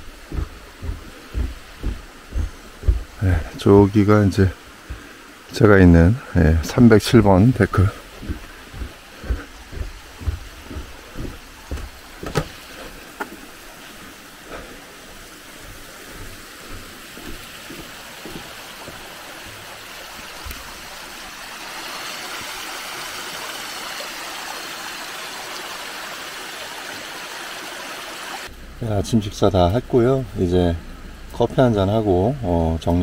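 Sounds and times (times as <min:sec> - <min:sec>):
footsteps on forest path: 0:00.0 - 0:05.5, 0:06.6 - 0:20.8
mountain stream rushing: 0:00.0 - 0:28.5.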